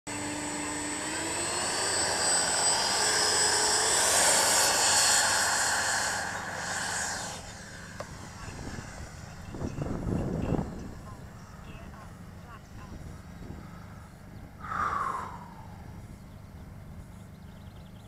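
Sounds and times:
electric ducted fan whine: 0.1s - 18.0s.

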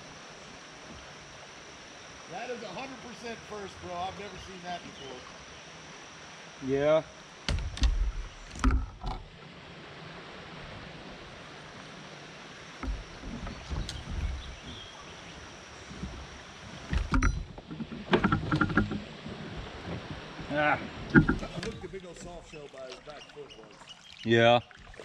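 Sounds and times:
steady hiss: 0.0s - 22.8s
paddle in water: 0.0s - 25.0s
paddle knocking on kayak hull: 12.8s - 15.1s, 15.8s - 23.2s.

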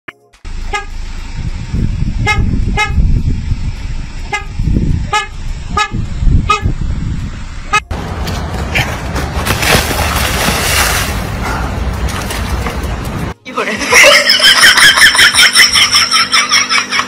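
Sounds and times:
steady low rumble: 0.4s - 13.4s
van horn blasts: 0.5s - 1.1s, 2.0s - 3.2s, 4.2s - 7.0s.

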